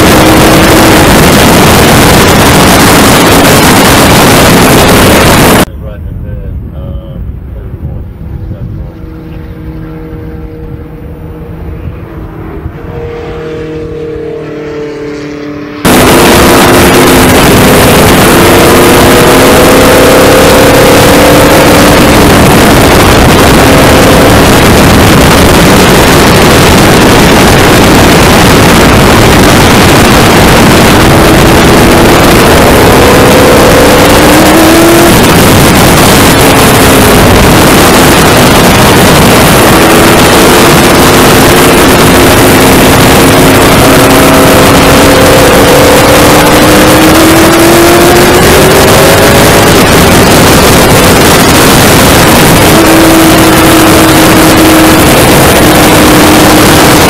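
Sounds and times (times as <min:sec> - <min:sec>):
race car engine at speed: 0:00.0 - 0:06.4, 0:07.0 - 0:57.0
wind noise: 0:00.0 - 0:13.3, 0:15.8 - 0:57.0.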